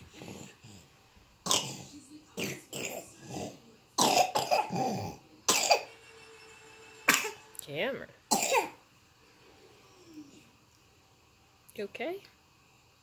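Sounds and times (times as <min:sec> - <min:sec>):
baby coughing and grunting: 0:01.4 - 0:05.9, 0:07.1 - 0:07.4, 0:08.3 - 0:08.8.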